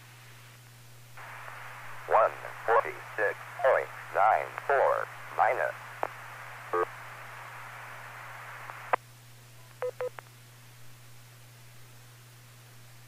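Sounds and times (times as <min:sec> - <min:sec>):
radio squelch hiss: 0:01.2 - 0:09.0.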